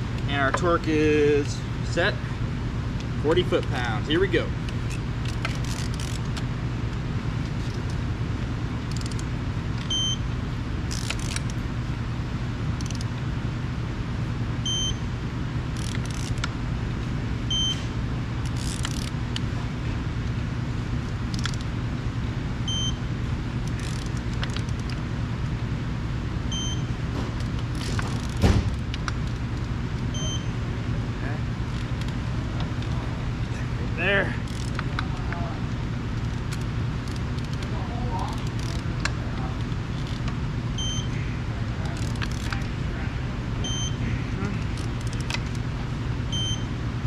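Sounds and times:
steady low hum: 0.0s - 47.0s
torque wrench ratcheting and clicking: 4.7s - 6.4s, 8.8s - 9.3s, 10.9s - 11.6s, 12.8s - 13.1s, 15.7s - 16.5s, 18.4s - 19.4s, 21.3s - 21.7s, 23.7s - 25.0s, 27.5s - 29.4s, 34.4s - 35.0s, 38.3s - 39.2s, 42.0s - 42.6s, 44.6s - 45.6s.

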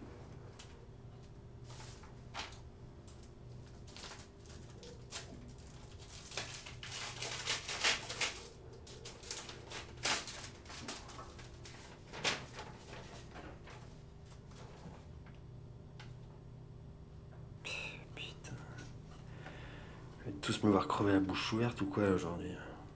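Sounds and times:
low electrical hum: 0.0s - 22.9s
paper rustling and crinkling: 0.5s - 15.2s.

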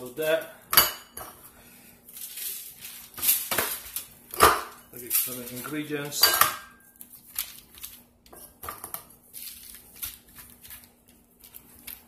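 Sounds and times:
rustles and crinkles of foil: 1.8s - 4.3s, 4.9s - 6.2s, 6.8s - 8.1s, 9.2s - 12.0s.

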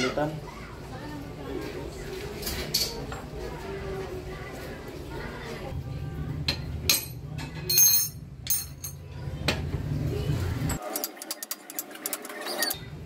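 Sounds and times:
metal bicycle parts clinking: 6.9s - 9.1s.

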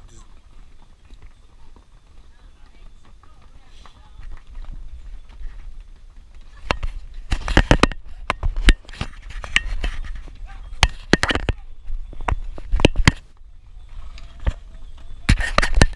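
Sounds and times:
donkey hooves on stone steps: 0.0s - 15.9s.

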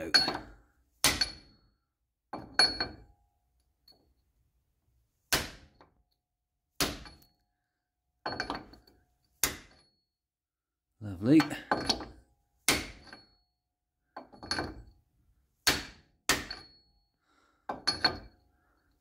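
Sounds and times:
hammer striking metal socket: 15.6s - 16.8s.

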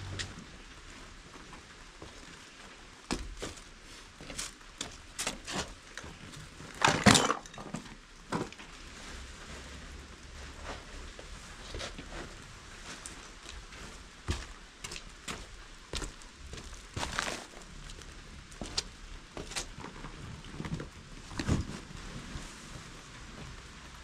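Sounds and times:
light rain hiss: 7.8s - 24.0s
plastic bags rustling: 16.6s - 17.8s.

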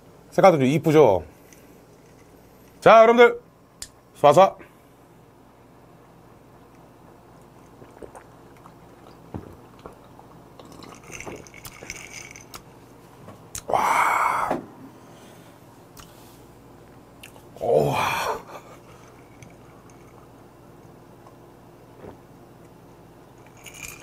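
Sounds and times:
man swallowing: 7.7s - 11.5s, 13.6s - 14.8s
breathy exhale: 13.7s - 15.6s.

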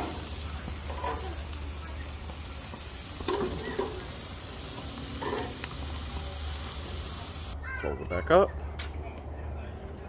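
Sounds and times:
metal tongs turning meat: 0.0s - 6.8s
chicken sizzling on grill: 0.0s - 8.3s.

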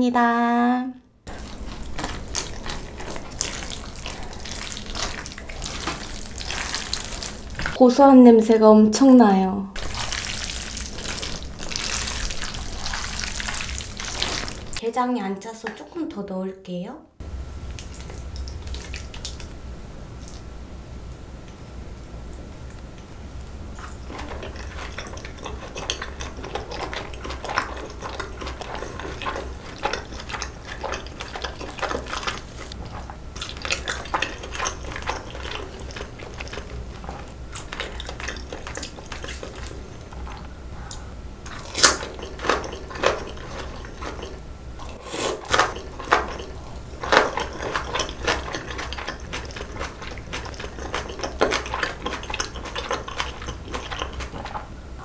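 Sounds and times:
slurping noodles: 1.3s - 7.8s, 41.5s - 54.6s
wet chewing: 1.3s - 7.8s, 9.8s - 14.8s, 17.7s - 19.5s, 23.4s - 54.7s.

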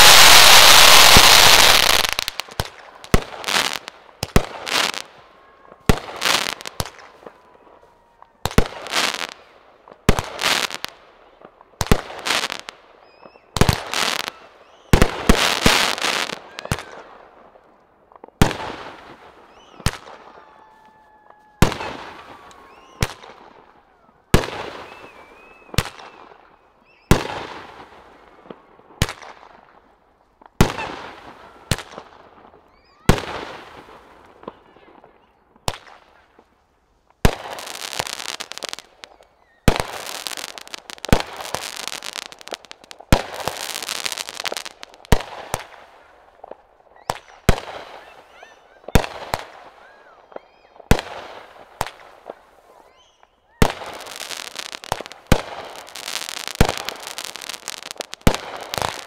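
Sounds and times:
firework bangs with crackle: 0.0s - 5.2s, 5.8s - 7.4s, 8.4s - 17.2s, 18.2s - 20.4s, 21.6s - 23.6s, 24.3s - 26.4s, 27.0s - 29.8s, 30.4s - 34.6s, 35.6s - 36.5s, 37.1s - 48.2s, 48.9s - 49.8s, 50.4s - 52.5s, 53.6s - 59.0s
firework crackling and hissing: 0.0s - 11.0s, 11.6s - 17.7s, 35.7s - 48.4s, 53.5s - 59.0s.

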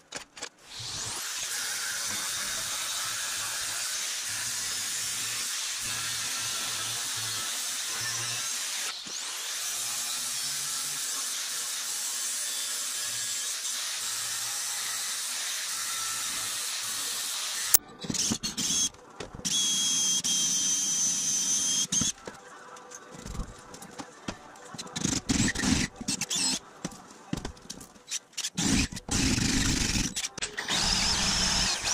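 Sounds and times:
angle grinder grinding metal: 0.7s - 17.8s, 28.4s - 31.9s
electric drill whining: 28.6s - 31.9s.

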